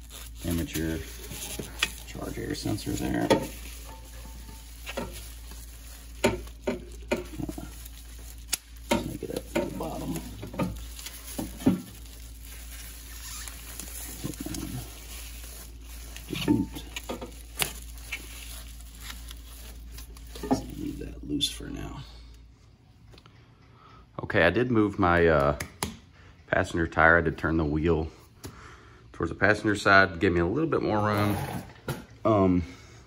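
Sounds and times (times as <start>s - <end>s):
bubble wrap crinkling: 0.0s - 22.0s.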